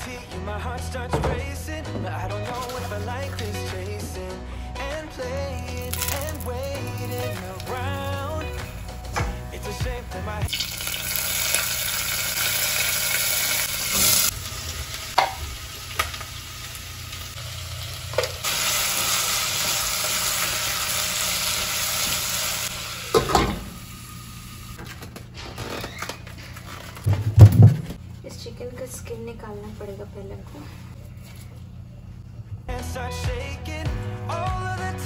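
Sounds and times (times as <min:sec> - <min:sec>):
onions sizzling and stirred: 0:05.8 - 0:08.2, 0:10.5 - 0:24.7
spices sizzling in hot oil: 0:10.5 - 0:24.8.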